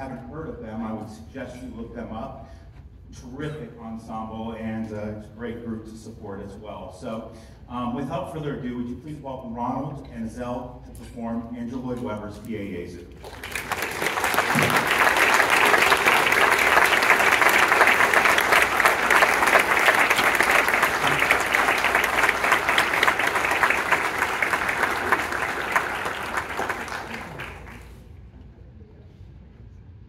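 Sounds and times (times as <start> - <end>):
audience applauding: 13.2 - 28.0.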